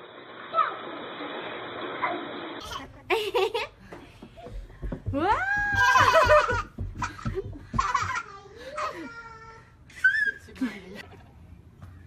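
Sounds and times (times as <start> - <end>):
small child squealing laugh: 10.0 - 10.4.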